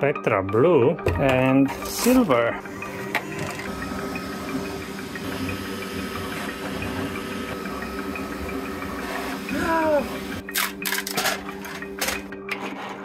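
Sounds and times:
printer mechanical hum: 1.7s - 10.5s.

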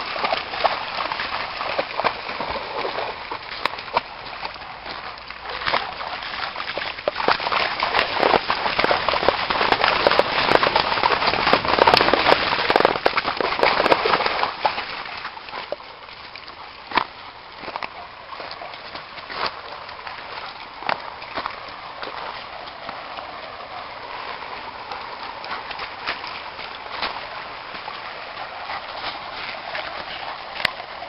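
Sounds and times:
dog splashing through creek: 0.0s - 31.0s.

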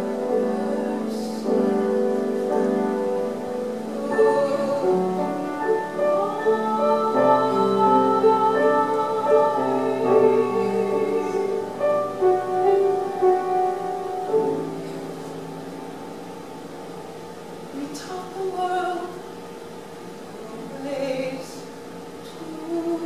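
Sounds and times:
woman singing: 0.0s - 11.9s, 17.7s - 19.3s, 20.3s - 23.0s
piano accompaniment: 0.0s - 23.0s.

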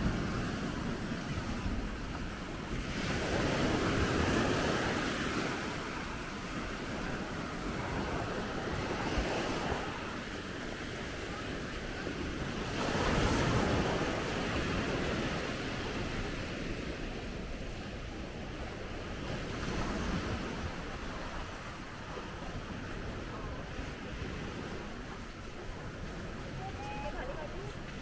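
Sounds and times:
sea waves washing onto beach: 0.0s - 28.0s
wind buffeting microphone: 0.0s - 28.0s.

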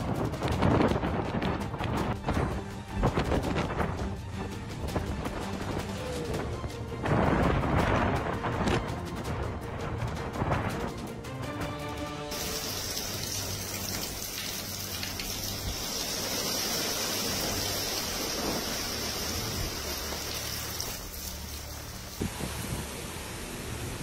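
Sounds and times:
heavy rain: 0.0s - 11.0s, 12.0s - 24.0s
wind rushing: 0.0s - 11.2s
quiet background music: 0.0s - 23.2s.

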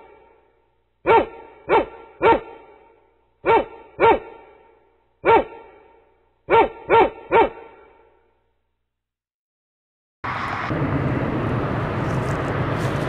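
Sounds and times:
dog barking: 1.0s - 8.2s.

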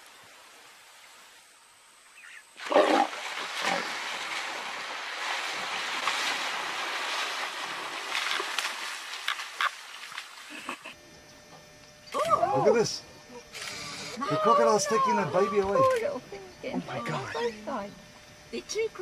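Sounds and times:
heavy water splashing: 2.6s - 10.7s.

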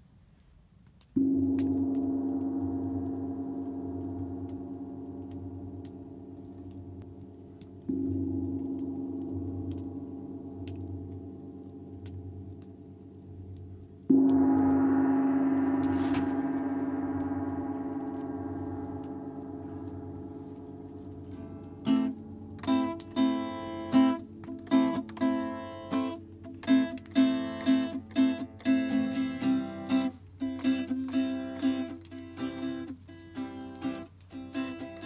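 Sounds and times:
gong-like struck note ringing: 1.2s - 24.3s
strummed string instrument: 1.2s - 35.0s.

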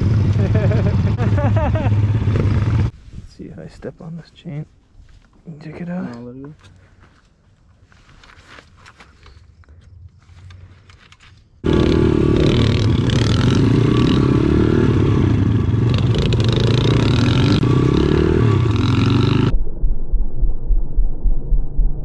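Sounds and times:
small motorcycle engine revving: 11.6s - 19.5s.

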